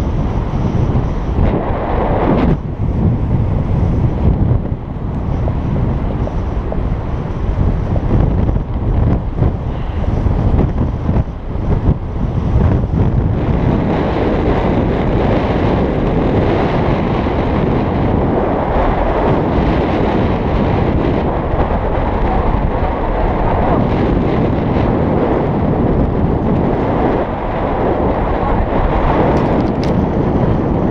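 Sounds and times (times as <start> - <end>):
wind blowing across microphone: 0.0 - 30.9.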